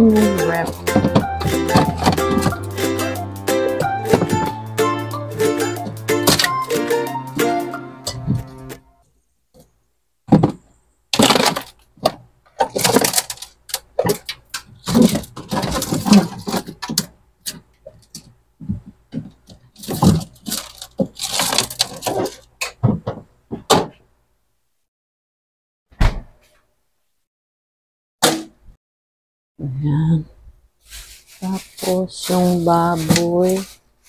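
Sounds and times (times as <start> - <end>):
things knocking and clattering: 0.2 - 2.7, 4.1 - 4.6, 10.3 - 24.0
plastic bags rustling: 11.2 - 17.1, 19.4 - 22.5, 30.8 - 34.0.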